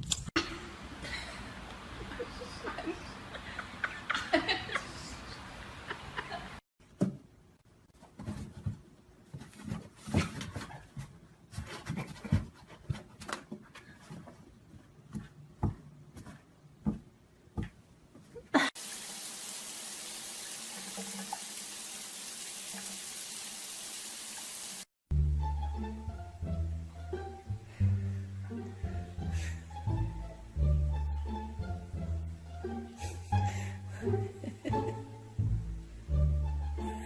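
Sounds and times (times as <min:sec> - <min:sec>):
steady hiss: 0:18.8 - 0:24.9.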